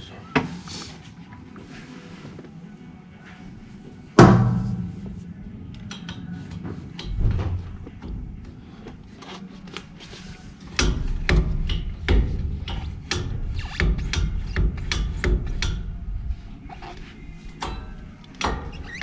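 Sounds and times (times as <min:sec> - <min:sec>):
tools knocking and clicking: 0:10.7 - 0:15.9, 0:17.6 - 0:19.0.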